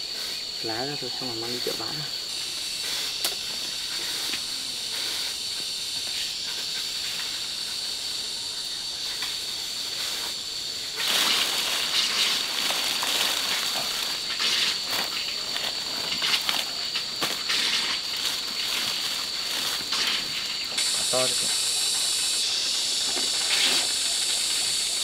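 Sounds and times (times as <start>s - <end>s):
insects buzzing: 0.0s - 25.0s
leafy plants rustling: 9.0s - 25.0s.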